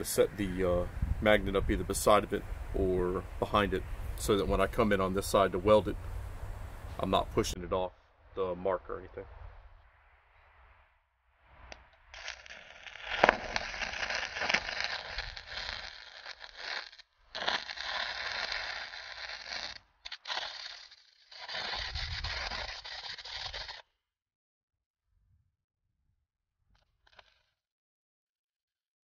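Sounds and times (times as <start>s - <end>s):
welding arc crackling: 12.0s - 23.8s, 27.0s - 27.4s.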